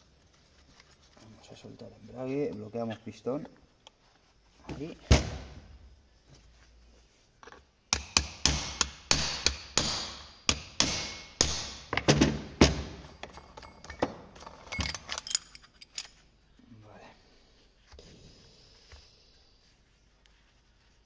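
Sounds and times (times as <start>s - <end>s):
hammer striking metal punch: 7.9s - 12.0s.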